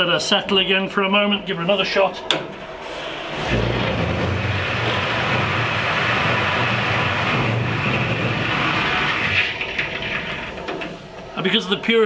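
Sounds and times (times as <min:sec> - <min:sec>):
rush of steam and water: 0:02.8 - 0:09.8.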